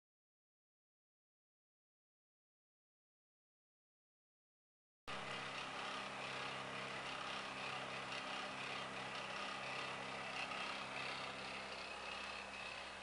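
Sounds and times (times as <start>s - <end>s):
electric fan whirring: 5.1s - 13.0s.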